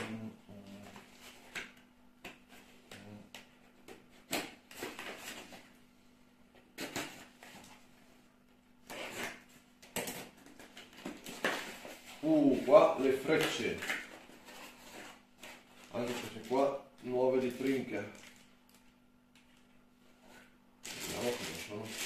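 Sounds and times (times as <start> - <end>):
wrapping rustling: 20.3 - 22.0.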